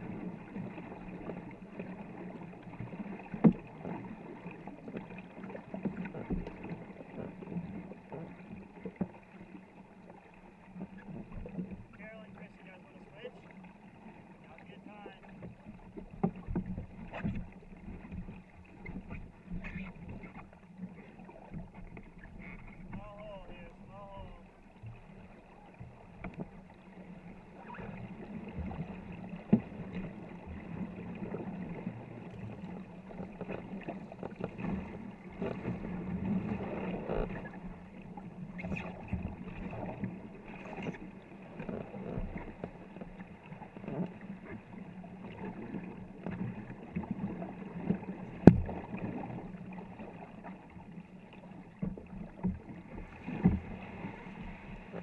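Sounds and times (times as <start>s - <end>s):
paddle blades splashing: 0.0s - 55.0s
water rushing along hull: 0.0s - 55.0s.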